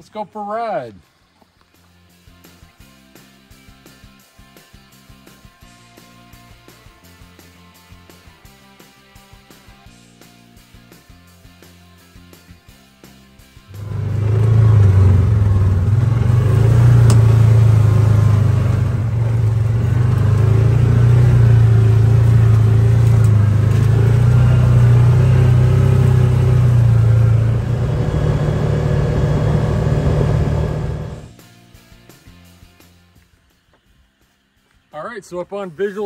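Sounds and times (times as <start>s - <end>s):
utility vehicle engine droning: 13.7s - 31.4s.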